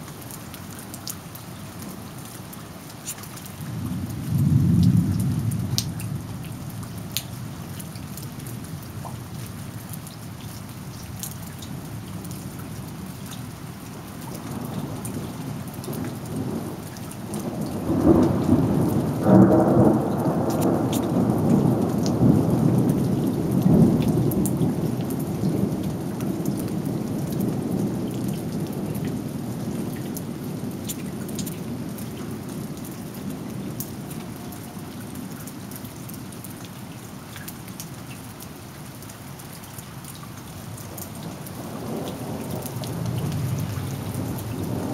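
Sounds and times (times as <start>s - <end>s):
steady rain: 0.0s - 44.9s
rolling thunder: 3.7s - 6.3s, 14.5s - 31.9s, 41.3s - 44.9s.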